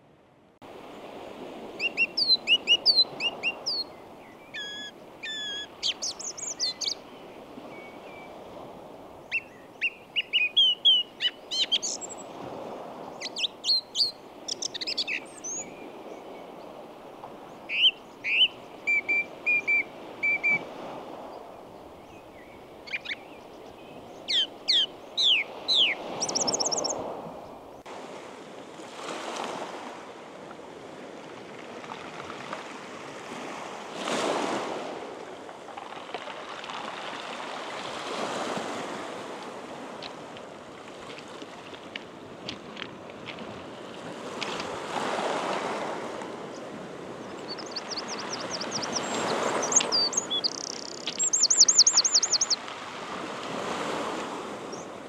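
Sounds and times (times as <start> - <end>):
waves lapping on pebbles: 0.6 - 4.2, 11.5 - 17.7, 25.4 - 55.0
bird song: 1.8 - 8.4, 9.2 - 12.4, 13.0 - 16.7, 17.5 - 20.6, 21.3 - 27.9, 47.2 - 52.6.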